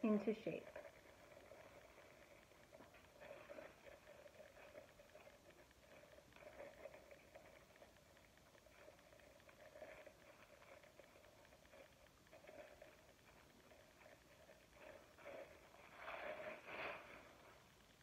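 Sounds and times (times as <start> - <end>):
plastic rubbing on clay: 0.0 - 18.0.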